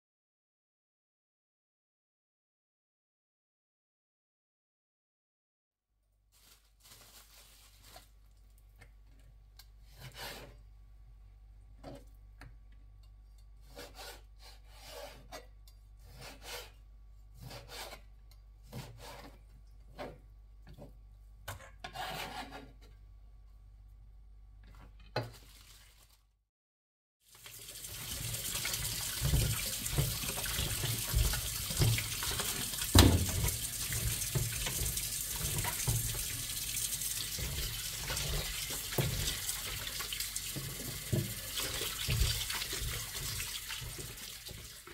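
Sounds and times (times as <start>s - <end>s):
rubbing and scraping strokes: 21.8s - 22.8s.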